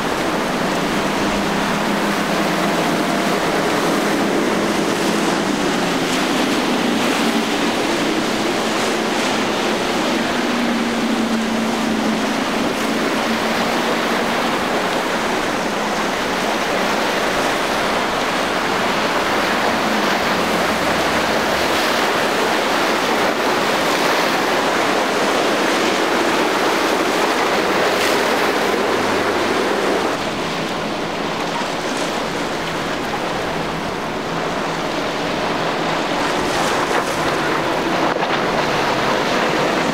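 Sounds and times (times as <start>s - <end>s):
boat engine hum: 0.0s - 39.9s
waves rushing: 0.0s - 39.9s.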